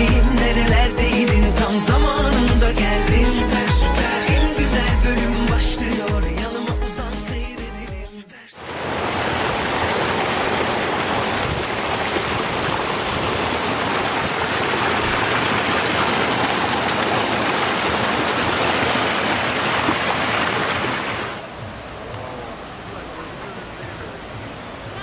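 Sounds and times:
water rushing over rocks: 8.6 - 25.0.

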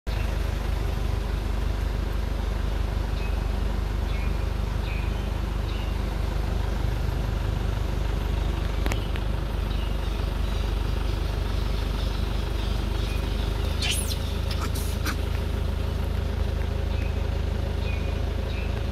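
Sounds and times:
low outdoor rumble: 0.1 - 18.9
faint high chirps: 11.7 - 15.2.

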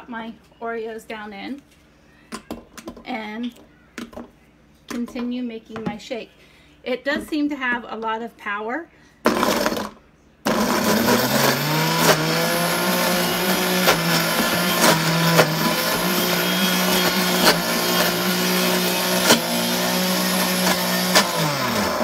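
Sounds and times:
blender motor running: 9.3 - 22.0.

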